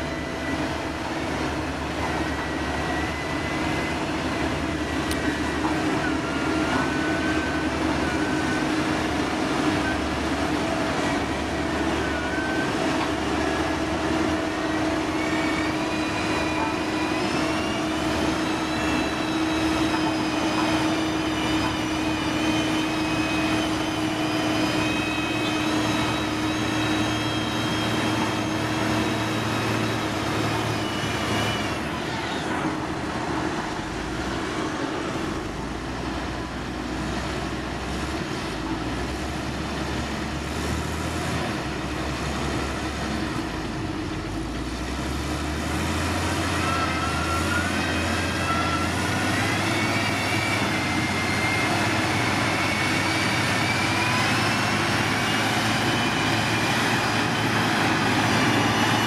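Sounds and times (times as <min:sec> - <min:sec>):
heavy diesel machinery running: 0:00.0 - 0:59.0.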